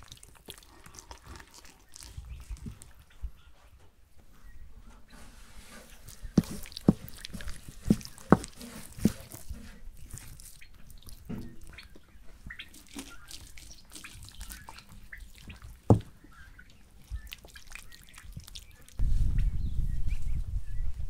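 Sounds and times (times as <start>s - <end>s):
hands squelching wet meat: 0.0s - 3.4s, 5.6s - 19.0s.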